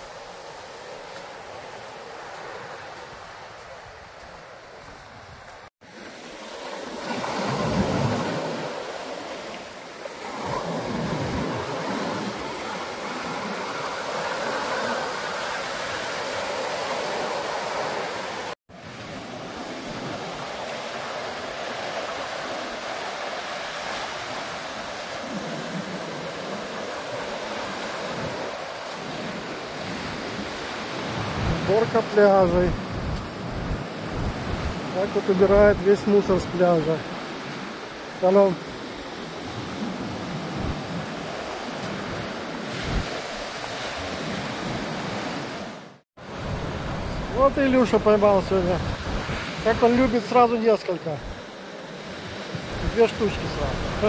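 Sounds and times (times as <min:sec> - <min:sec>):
surf breaking on beach: 0:00.0 - 0:54.0
wind gusting on microphone: 0:10.2 - 0:54.0.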